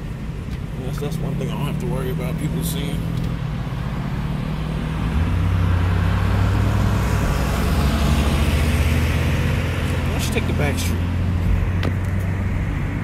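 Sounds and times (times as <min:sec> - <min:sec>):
car engine hum in cabin: 0:00.0 - 0:13.0.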